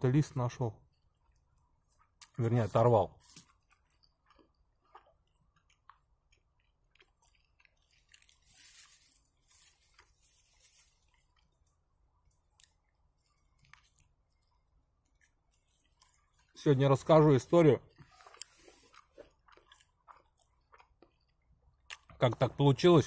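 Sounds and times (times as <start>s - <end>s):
man chewing food: 0.8s - 2.4s, 3.2s - 22.2s
soft rustle: 7.8s - 16.6s.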